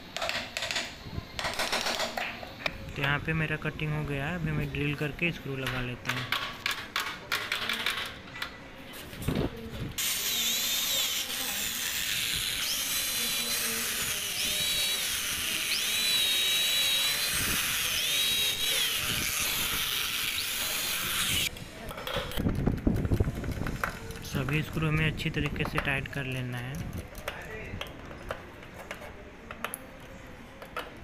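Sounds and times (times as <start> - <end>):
electric drill boring into wood: 10.0 - 21.5.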